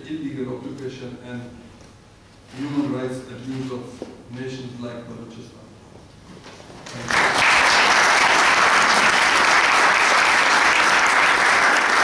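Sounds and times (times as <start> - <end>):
audience applauding: 6.9 - 12.0.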